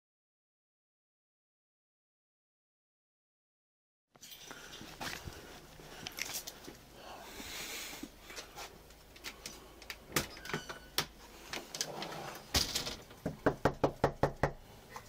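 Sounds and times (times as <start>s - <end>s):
knocking on door: 13.2s - 14.6s.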